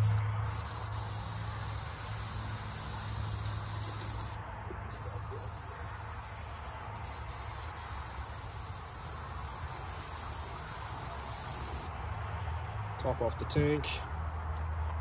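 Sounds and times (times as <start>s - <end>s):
airbrush spraying hiss: 0.0s - 11.9s.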